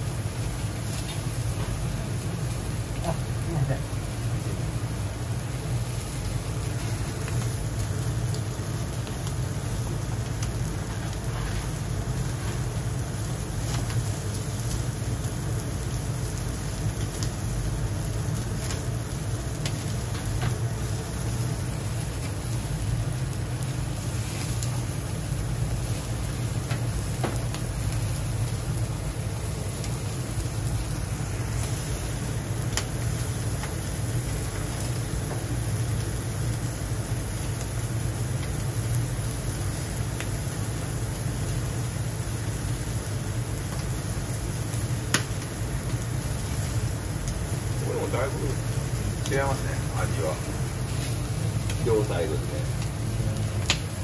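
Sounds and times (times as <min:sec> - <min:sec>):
meat sizzling on a grill: 0:00.0 - 0:54.0
fat popping and crackling: 0:32.3 - 0:34.7, 0:48.2 - 0:54.0.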